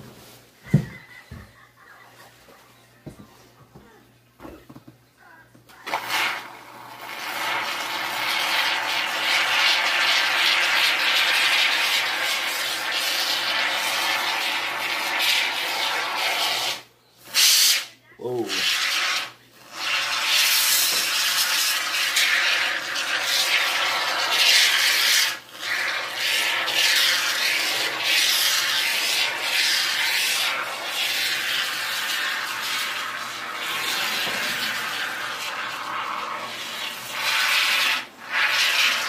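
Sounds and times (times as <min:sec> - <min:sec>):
aerosol foam can hissing: 0:05.8 - 0:17.9, 0:18.5 - 0:39.0.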